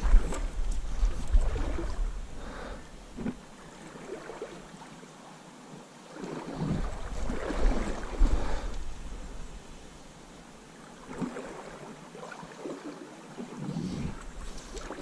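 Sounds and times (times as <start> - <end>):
wind rumbling on microphone: 0.0 - 3.5, 6.5 - 10.0, 13.4 - 15.0.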